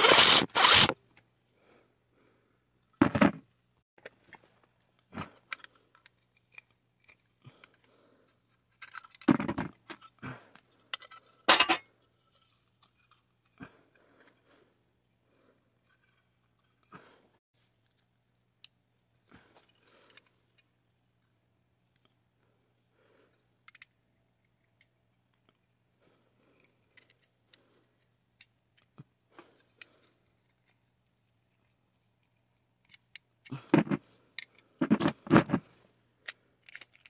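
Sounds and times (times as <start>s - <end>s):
metal parts clinking and scraping: 0.0s - 0.9s, 8.6s - 10.2s, 10.8s - 13.6s, 15.8s - 16.9s, 36.2s - 37.0s.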